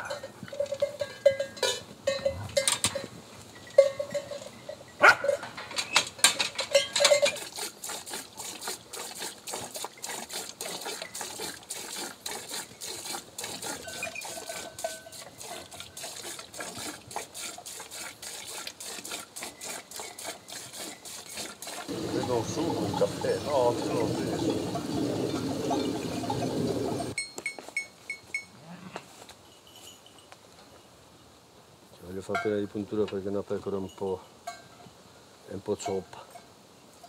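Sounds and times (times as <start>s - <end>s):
sheep bells clanking: 0.0s - 7.5s, 13.7s - 15.6s, 19.6s - 28.6s, 33.6s - 34.9s
milk squirting rhythmically: 7.4s - 27.2s.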